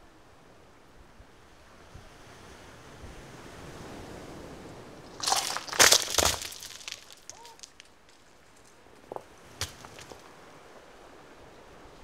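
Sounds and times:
stones clattering onto rocks: 0:05.1 - 0:10.3.

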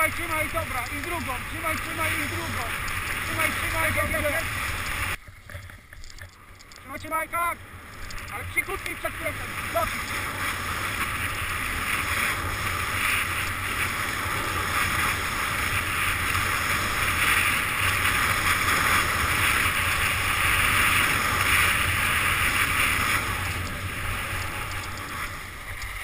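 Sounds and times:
wind rushing over microphone: 0:00.0 - 0:05.2
skis scraping over snow: 0:00.0 - 0:26.0.

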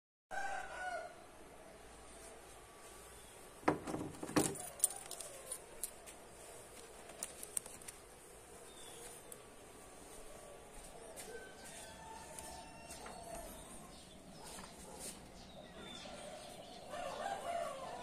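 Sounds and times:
keys jangling: 0:04.2 - 0:06.1.

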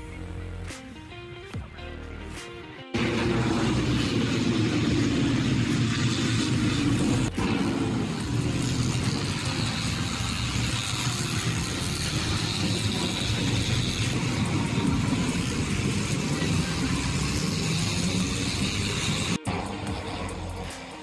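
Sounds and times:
racing motorcycle engines: 0:03.0 - 0:21.0.

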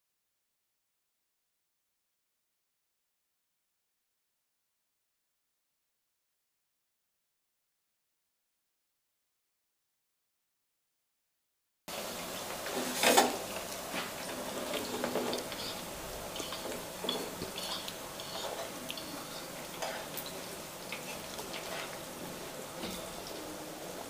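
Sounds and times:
dough sizzling in hot fat: 0:11.9 - 0:24.0.

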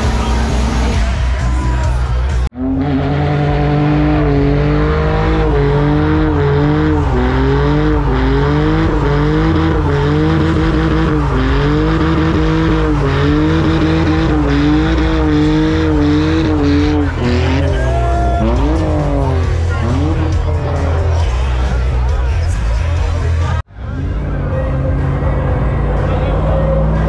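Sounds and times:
car engine revving high: 0:02.5 - 0:22.0.

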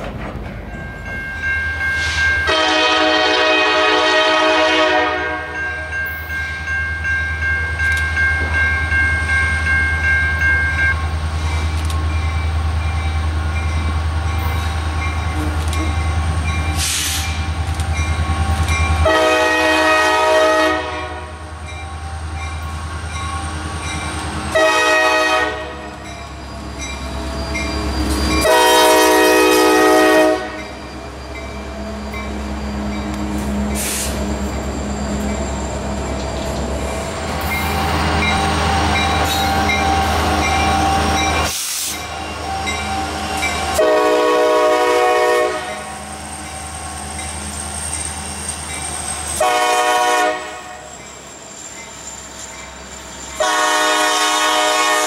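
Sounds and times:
freight cars rolling on track: 0:00.0 - 0:02.4, 0:25.5 - 0:54.6
locomotive rumble: 0:00.0 - 0:55.0
train horn blasts: 0:02.0 - 0:05.7, 0:19.0 - 0:21.5, 0:24.5 - 0:26.0, 0:28.4 - 0:30.6, 0:42.1 - 0:46.1, 0:49.4 - 0:50.9, 0:53.4 - 0:55.0.

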